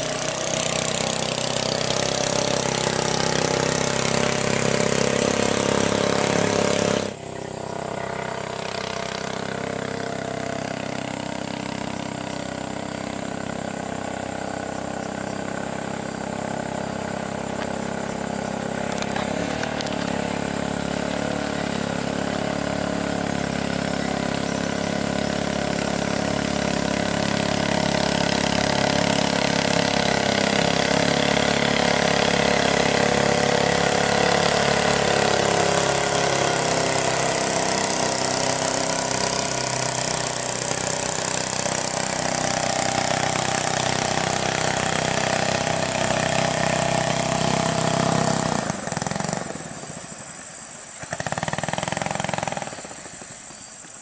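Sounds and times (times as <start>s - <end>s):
boat engine droning: 0.0s - 54.0s.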